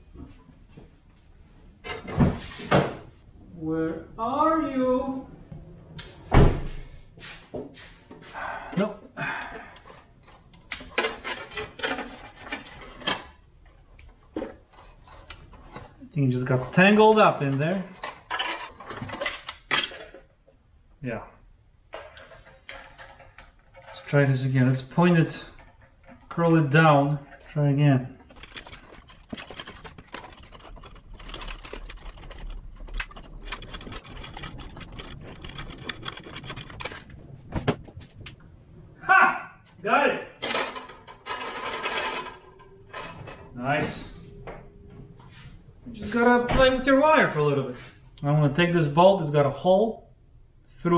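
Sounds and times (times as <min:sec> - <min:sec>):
wire clicking and scraping on metal: 0:09.4 - 0:20.2, 0:22.0 - 0:37.4.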